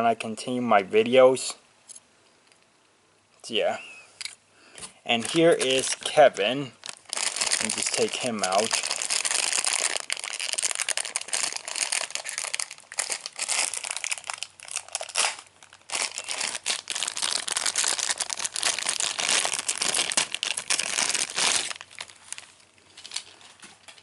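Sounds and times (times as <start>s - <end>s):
plastic wrapping crinkling: 5.1s - 24.0s.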